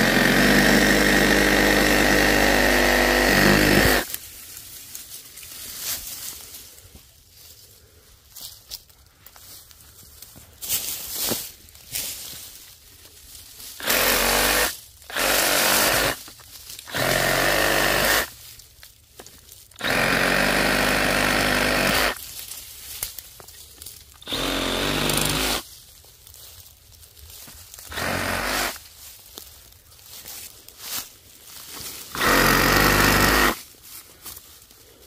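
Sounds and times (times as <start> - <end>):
reciprocating saw cutting branches: 0.0 - 4.2, 13.8 - 18.4, 19.8 - 22.2, 24.2 - 25.7, 27.8 - 28.8, 32.0 - 33.7.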